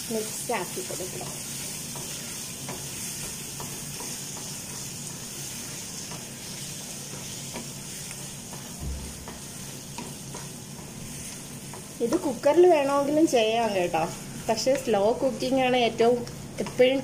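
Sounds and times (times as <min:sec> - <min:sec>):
meat sizzling in a frying pan: 0:00.0 - 0:17.0
spatula scraping and tapping pan: 0:00.9 - 0:12.5.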